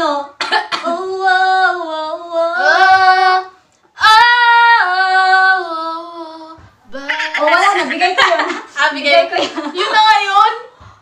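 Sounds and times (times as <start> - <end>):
woman singing unaccompanied: 0.0 - 7.8.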